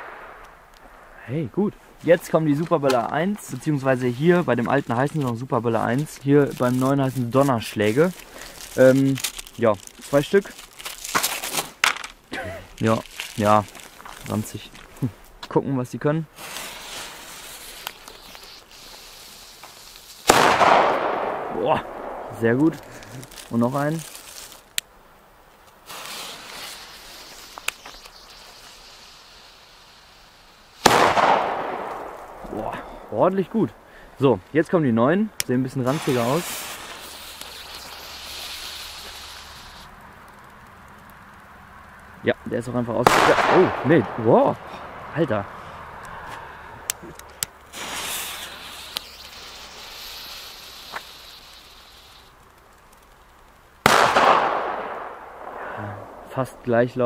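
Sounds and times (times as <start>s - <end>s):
firecracker bang: 0.0s - 1.2s, 20.2s - 23.3s, 30.8s - 33.0s, 43.0s - 44.8s, 53.8s - 56.3s
small sharp cracks: 0.0s - 1.2s, 4.7s - 15.6s, 16.4s - 28.6s, 30.8s - 32.6s, 35.3s - 42.2s, 46.8s - 49.8s, 50.6s - 56.4s
firecracker fuse hissing: 1.8s - 15.4s, 16.2s - 33.1s, 35.4s - 42.1s, 46.8s - 56.7s.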